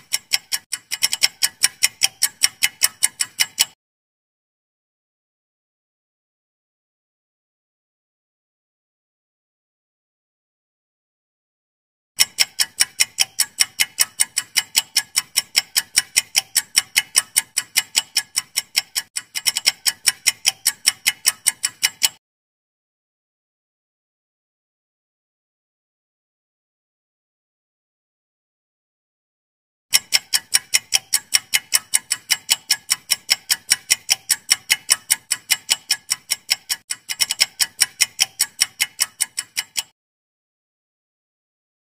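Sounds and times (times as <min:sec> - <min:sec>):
clock ticking: 0:00.0 - 0:03.8, 0:12.2 - 0:22.2, 0:29.9 - 0:40.0.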